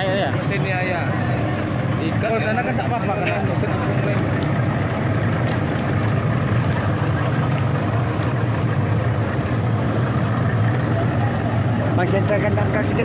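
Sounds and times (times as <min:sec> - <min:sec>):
outboard motors droning: 0:00.0 - 0:13.0.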